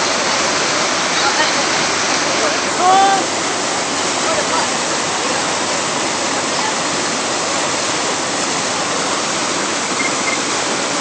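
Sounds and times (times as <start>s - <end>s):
floodwater rushing over rocks: 0.0s - 11.0s.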